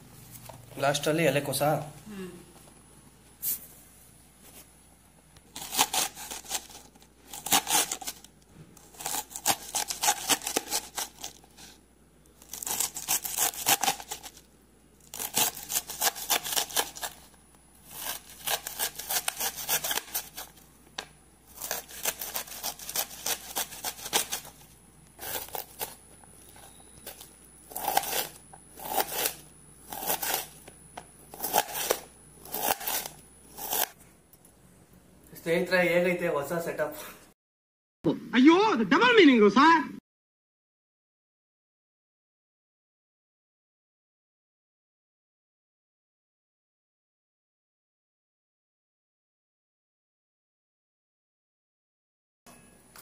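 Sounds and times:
knife slicing cabbage on board: 0:05.6 - 0:08.2, 0:08.8 - 0:11.7, 0:15.1 - 0:17.2, 0:17.9 - 0:20.6, 0:21.5 - 0:24.6, 0:27.0 - 0:30.7, 0:31.3 - 0:34.0.

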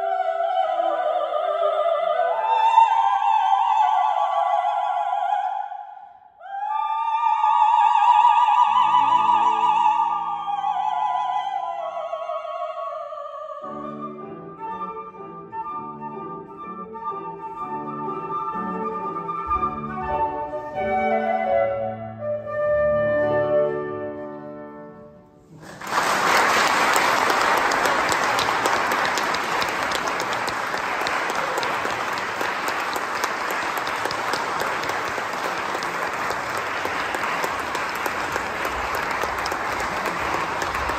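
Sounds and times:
flute and piano: 0:13.6 - 0:25.2
audience applause: 0:25.5 - 0:40.9.

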